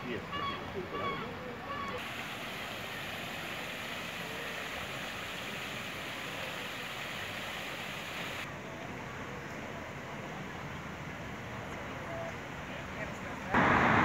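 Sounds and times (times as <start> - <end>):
fountain water splashing: 2.0 - 10.6.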